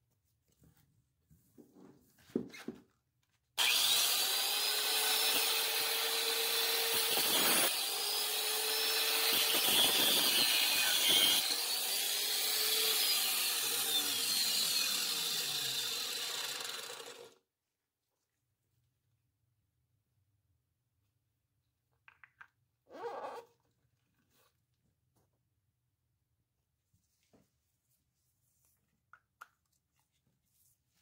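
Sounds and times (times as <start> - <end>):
power tool cutting metal bolt: 3.6 - 17.3.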